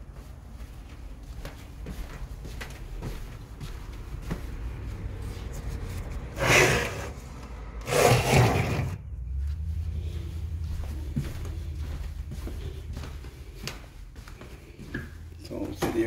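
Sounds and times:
loud rubbing and rustling: 0:05.2 - 0:07.2, 0:07.8 - 0:09.0
low steady hum: 0:09.0 - 0:15.8.

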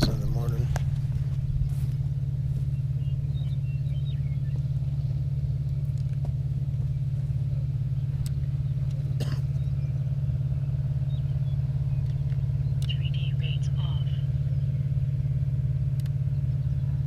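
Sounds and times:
engine idling: 0:00.0 - 0:17.0
faint clicks: 0:08.2 - 0:09.0.

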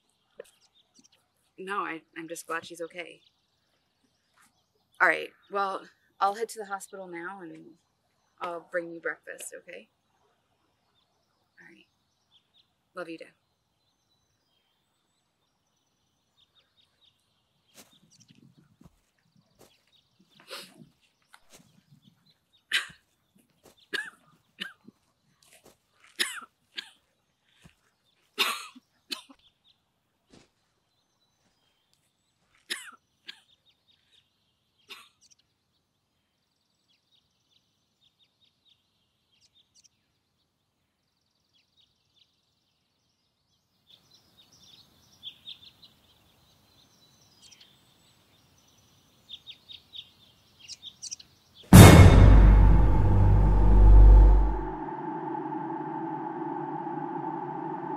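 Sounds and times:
loud hit with deep rumble: 0:51.8 - 0:57.9.

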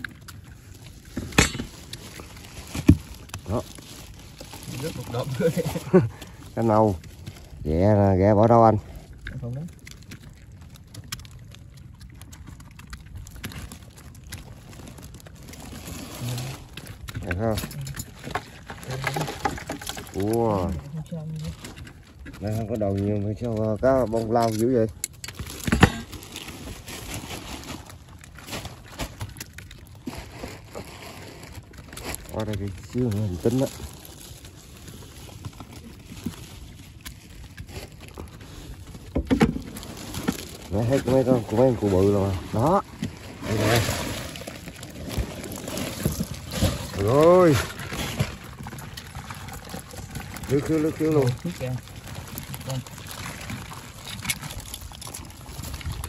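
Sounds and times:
hands sorting wet debris: 0:00.0 - 0:56.0
net rustling: 0:25.3 - 0:56.0.

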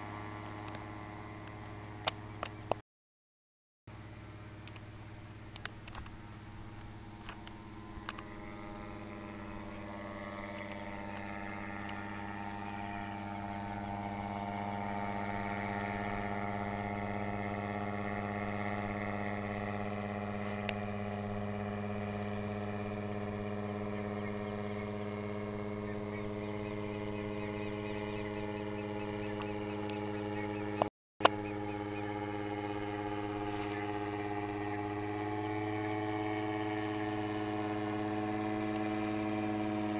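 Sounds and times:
paramotor engine droning: 0:00.0 - 0:02.8, 0:03.9 - 0:39.9
click: 0:04.6 - 0:04.8, 0:05.5 - 0:06.1.

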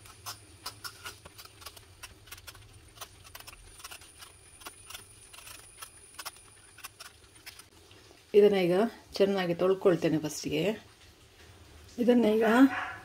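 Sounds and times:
vegetable peeler scraping: 0:00.0 - 0:07.7.

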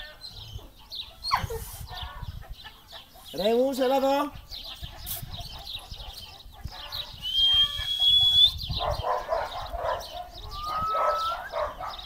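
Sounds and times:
chickens clucking: 0:00.0 - 0:12.0
whistle-like tones flicking upward: 0:07.2 - 0:08.6.

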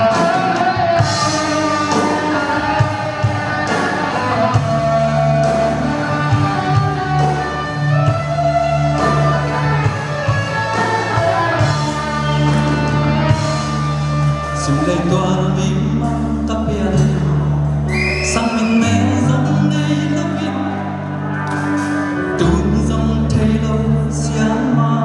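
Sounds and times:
live rock band playing: 0:00.0 - 0:25.0
man singing into microphone: 0:14.4 - 0:21.1, 0:22.2 - 0:25.0.

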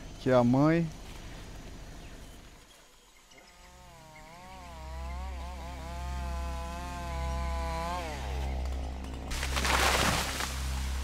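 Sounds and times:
chainsaw cutting: 0:03.4 - 0:11.0.

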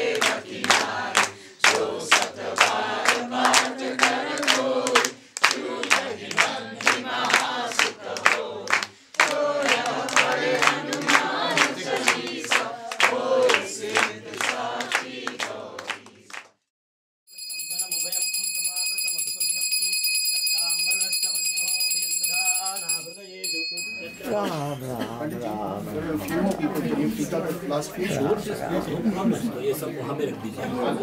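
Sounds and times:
crowd singing a chant: 0:00.0 - 0:16.3
rhythmic hand clapping: 0:00.0 - 0:16.6.

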